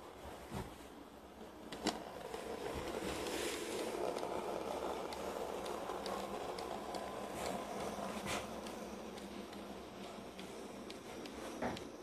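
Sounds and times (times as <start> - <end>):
model train motor humming: 1.1 - 12.0
light ticks: 8.6 - 11.9.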